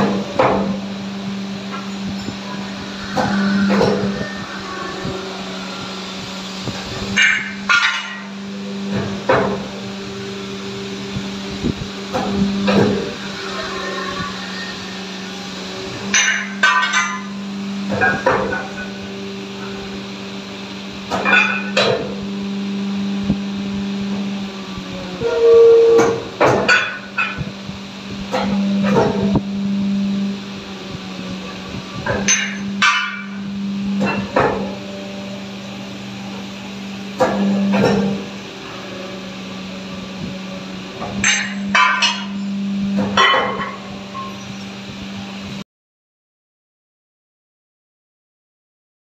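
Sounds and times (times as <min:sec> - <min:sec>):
hydraulic pump motor hum: 0:00.0 - 0:45.6
sharp metallic clanks: 0:01.7 - 0:09.7, 0:16.0 - 0:19.0, 0:21.1 - 0:22.2, 0:32.0 - 0:34.8, 0:41.0 - 0:44.8
metal jaw clanks: 0:07.2 - 0:08.4, 0:21.1 - 0:22.1, 0:32.1 - 0:33.4, 0:41.2 - 0:42.4.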